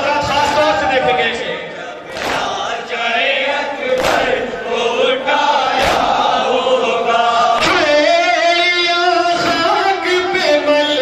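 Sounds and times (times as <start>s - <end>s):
men chanting in unison: 0.0s - 11.0s
hands slapping chests: 2.1s - 2.6s, 4.0s - 4.4s, 5.8s - 6.2s.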